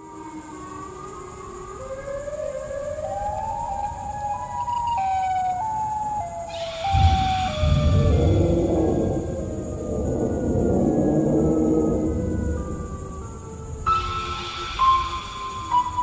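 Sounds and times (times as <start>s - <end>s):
eerie siren wail: 0.0s - 16.0s
deep rumble: 6.9s - 14.0s.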